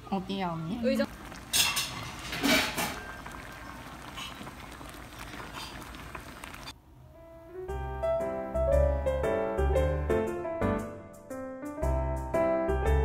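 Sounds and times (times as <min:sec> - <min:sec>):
stew boiling with bubbling hiss: 0:00.0 - 0:06.8
boiling pot spitting: 0:00.3 - 0:06.8.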